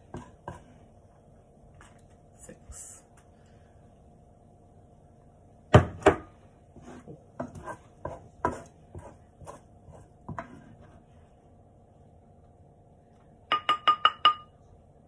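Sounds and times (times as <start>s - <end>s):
wooden spoon knocking in pan: 13.5s - 14.5s.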